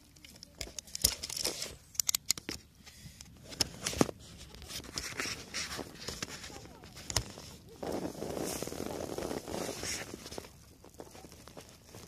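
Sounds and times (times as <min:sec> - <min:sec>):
cloth and plastic rustling: 0:00.0 - 0:12.0
camera handling clicks and knocks: 0:00.6 - 0:02.6.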